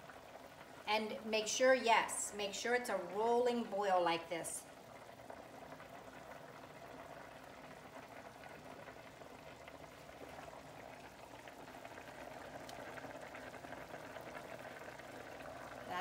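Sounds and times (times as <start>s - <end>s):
broth boiling in a pot: 0.0s - 16.0s.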